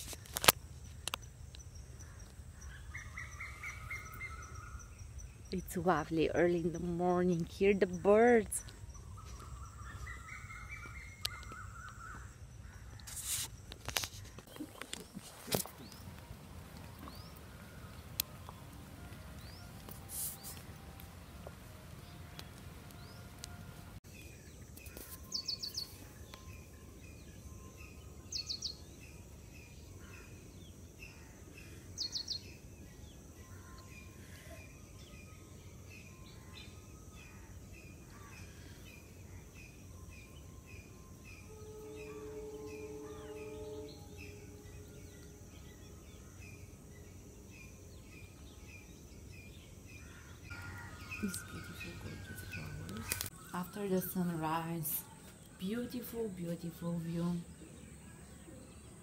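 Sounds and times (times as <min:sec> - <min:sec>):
birds calling: 0:00.3 - 0:59.0
held low tone: 0:40.8 - 0:46.8.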